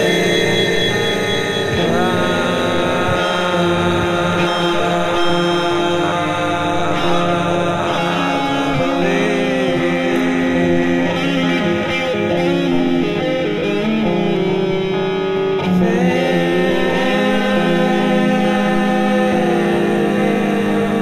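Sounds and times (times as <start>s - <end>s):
sustained instrumental notes: 0.0s - 16.4s
person singing: 0.0s - 21.0s.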